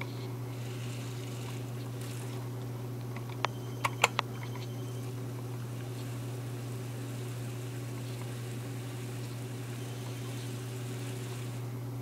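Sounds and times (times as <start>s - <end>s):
low electrical hum with whir: 0.0s - 12.0s.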